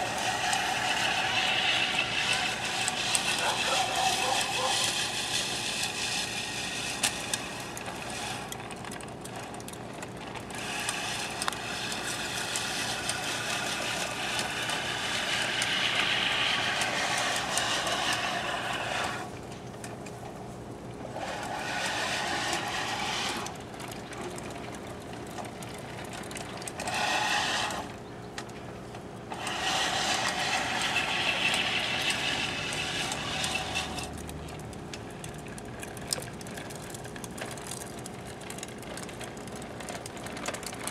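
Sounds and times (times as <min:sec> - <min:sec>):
reel mower whirring: 0:00.0 - 0:40.9.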